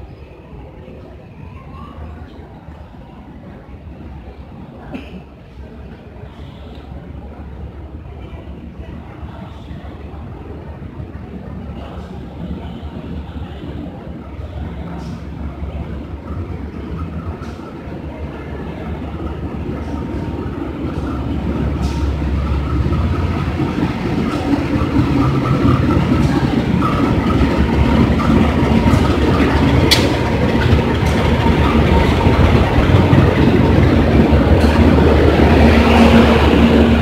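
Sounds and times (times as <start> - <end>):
train rumbling: 0.0 - 37.0.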